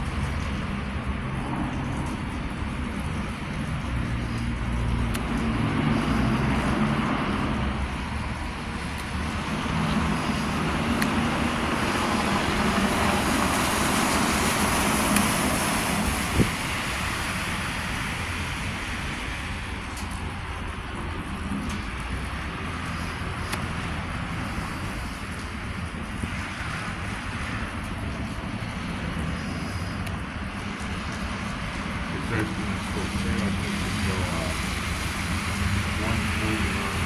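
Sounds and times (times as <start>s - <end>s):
engine hum: 0.0s - 37.0s
tyres hissing on wet road: 0.0s - 37.0s.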